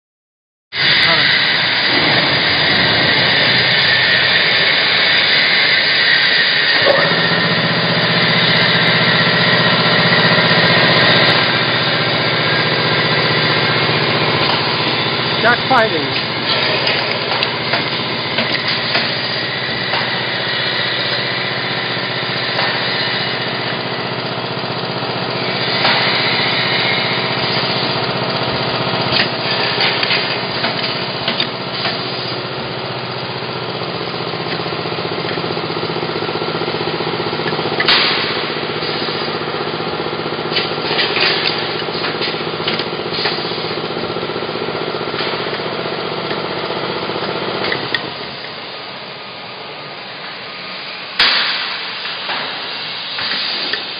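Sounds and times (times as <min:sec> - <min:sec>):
machine motor hum: 0:00.8 - 0:51.1
sharp clicks and knocks: 0:29.1 - 0:32.0, 0:40.6 - 0:43.4.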